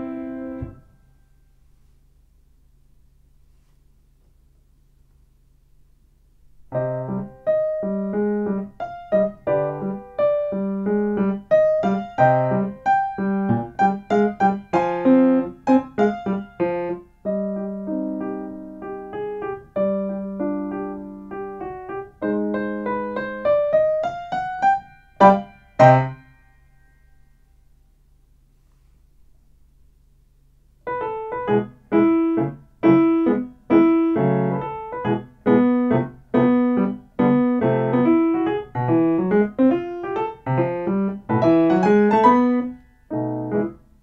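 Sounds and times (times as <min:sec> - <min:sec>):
grand piano playing: 0:00.0 - 0:00.8, 0:06.7 - 0:26.2, 0:30.9 - 0:43.8.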